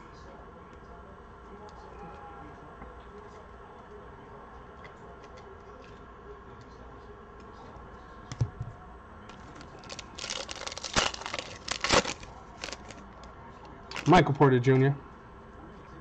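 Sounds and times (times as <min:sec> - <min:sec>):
foil wrapper tearing and crinkling: 0:09.3 - 0:13.2, 0:13.9 - 0:14.2.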